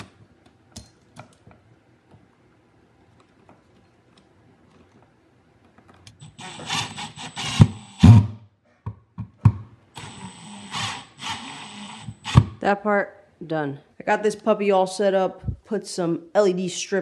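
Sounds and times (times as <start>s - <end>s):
impact driver whining: 6.2s - 8.4s, 9.5s - 12.6s.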